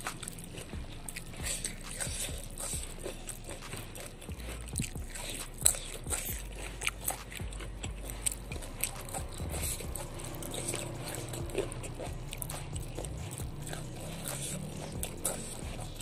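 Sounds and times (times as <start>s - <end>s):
biting and chewing food: 0.0s - 16.0s
crisp clicks and crunches: 0.0s - 16.0s.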